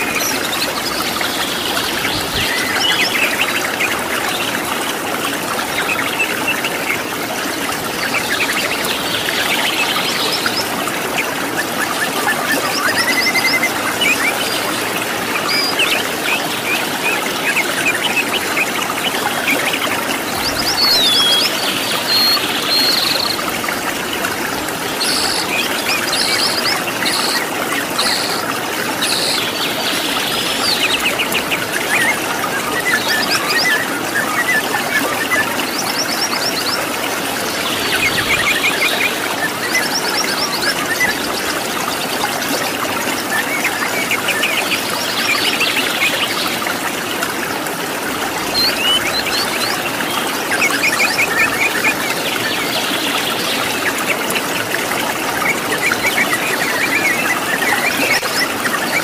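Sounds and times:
waterfall rushing: 0:00.0 - 0:59.0
birds chirping and whistling: 0:20.4 - 0:23.4, 0:48.4 - 0:53.9.

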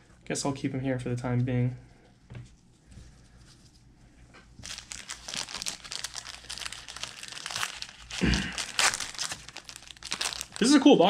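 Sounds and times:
card pack wrapper crinkling: 0:04.6 - 0:11.0.

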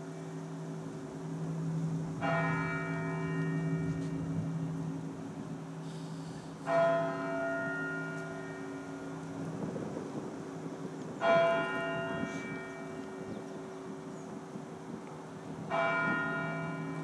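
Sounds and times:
low bell humming: 0:00.0 - 0:17.0
higher-pitched bell strikes: 0:01.3 - 0:04.8.

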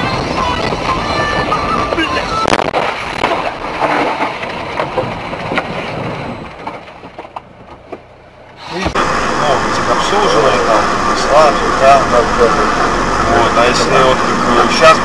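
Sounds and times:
road noise: 0:00.0 - 0:15.0
knocks and clatter: 0:02.5 - 0:08.1.

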